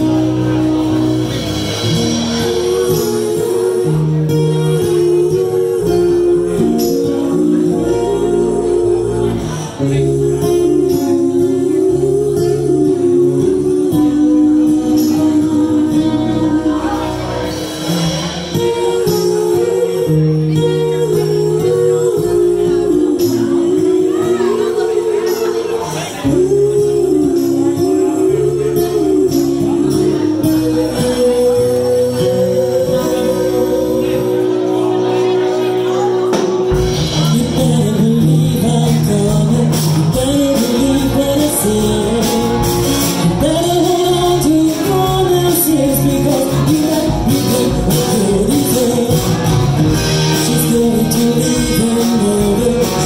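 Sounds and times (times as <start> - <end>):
drums: 0.0 - 53.0
electric guitar: 0.0 - 53.0
live band playing: 0.0 - 53.0
women singing in harmony: 2.4 - 17.4, 18.8 - 34.5.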